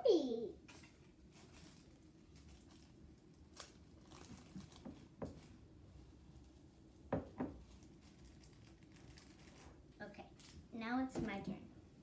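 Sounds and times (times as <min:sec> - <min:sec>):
plastic packet crinkling: 0:00.8 - 0:05.1, 0:07.7 - 0:10.6.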